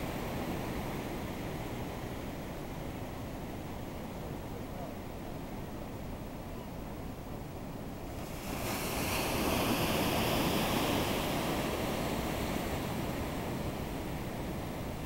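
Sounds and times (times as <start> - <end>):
low wash of water: 7.2 - 15.0
ocean wave breaking: 8.1 - 13.6.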